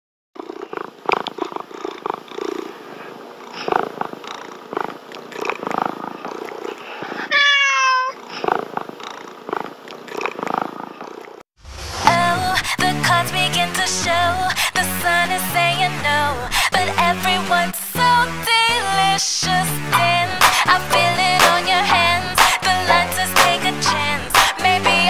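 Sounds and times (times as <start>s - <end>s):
cat purring: 0.4s - 7.3s, 8.2s - 11.4s
cat meowing: 7.3s - 8.2s
music: 11.7s - 25.0s.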